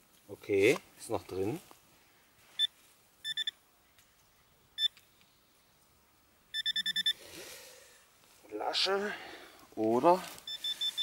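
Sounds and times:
metal detector pinpointer beeping: 2.6s - 3.6s, 6.5s - 7.2s, 10.4s - 11.0s
soil rustling: 7.2s - 11.0s.

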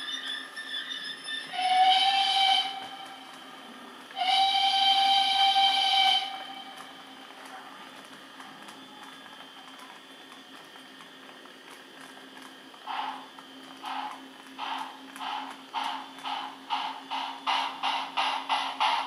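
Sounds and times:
model steam whistle: 0.0s - 3.4s, 4.2s - 6.8s
model locomotive running sound: 0.0s - 19.0s.

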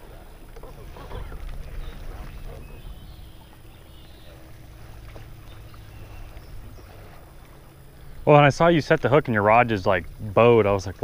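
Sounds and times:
light knocks and splashes: 0.0s - 7.9s
boat engine hum: 0.0s - 11.0s.

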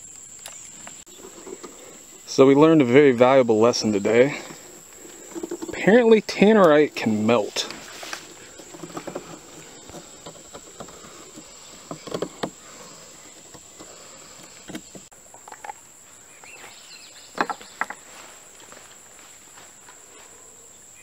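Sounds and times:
crickets chirping: 0.0s - 21.0s
handling clicks and knocks: 3.7s - 15.8s, 17.3s - 18.0s.

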